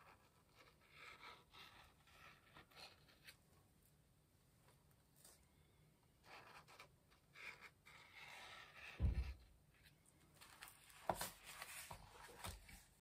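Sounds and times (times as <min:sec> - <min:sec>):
marker scratching on paper: 0:00.0 - 0:03.4, 0:06.2 - 0:09.4
dull thump of journal on table: 0:09.0 - 0:09.5.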